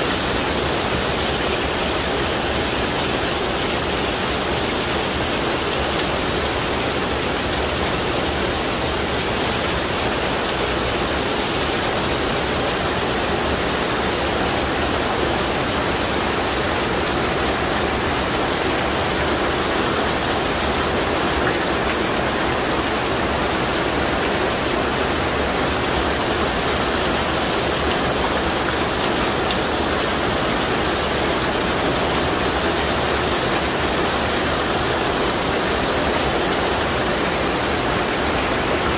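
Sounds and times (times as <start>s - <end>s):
heavy rain on pavement: 0.0s - 38.9s
rain splashing into water: 0.0s - 38.9s
runoff pouring off roof: 0.0s - 38.9s.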